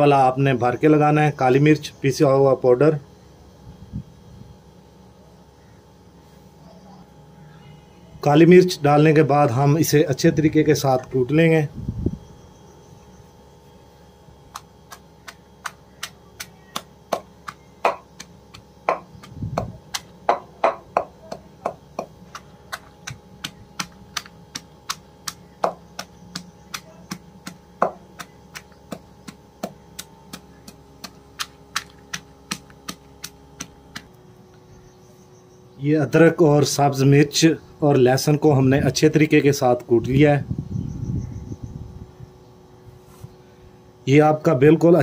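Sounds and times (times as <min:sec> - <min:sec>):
wooden pestle pounding in mortar: 0:14.5 - 0:34.2.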